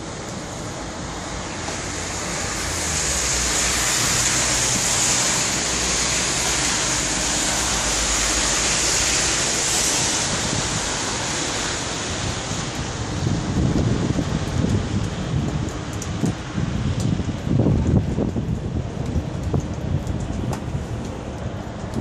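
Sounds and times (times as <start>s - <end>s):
tyres hissing through slush: 1.4s - 13.1s.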